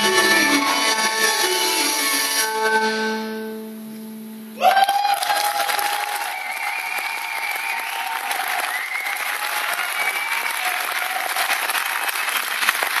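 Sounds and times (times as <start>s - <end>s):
audience clapping: 4.7s - 13.0s.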